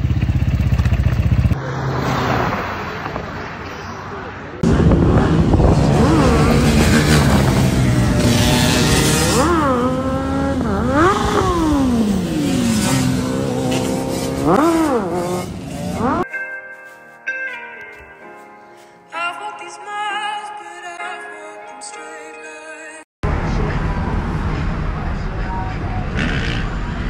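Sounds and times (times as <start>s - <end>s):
motorcycle engine revving: 0.0s - 2.8s, 4.6s - 16.2s, 25.9s - 27.0s
music: 16.3s - 23.0s.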